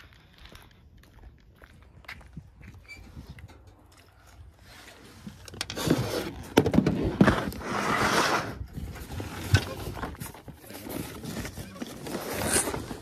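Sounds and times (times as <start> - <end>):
plastic bin scraping on truck bed: 5.6 - 13.0.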